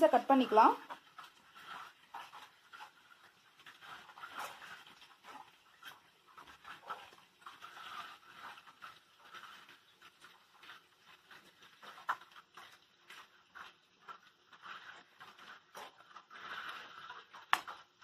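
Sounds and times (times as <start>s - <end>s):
knife scraping through bread: 6.4s - 17.8s.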